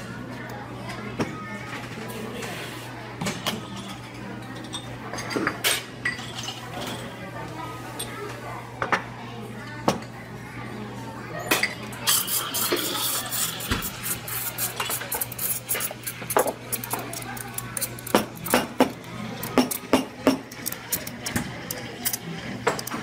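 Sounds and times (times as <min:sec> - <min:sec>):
metal pitchers and cups clinking: 0:11.5 - 0:23.0.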